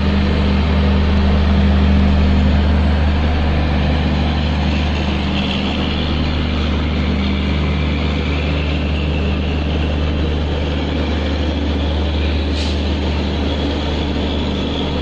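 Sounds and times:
diesel locomotive engine droning: 0:00.0 - 0:15.0
brief high hiss: 0:12.5 - 0:12.9.

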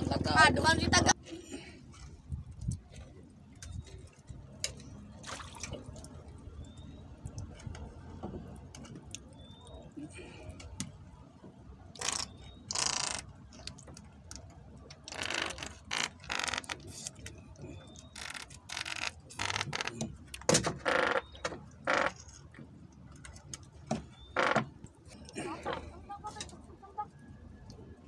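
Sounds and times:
fishing line scratching in fingers: 0:12.0 - 0:13.3.

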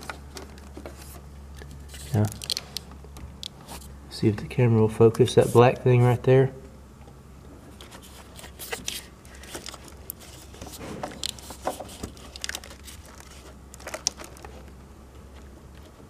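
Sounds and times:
crinkly plastic rustling: 0:00.0 - 0:02.8, 0:07.8 - 0:15.9.

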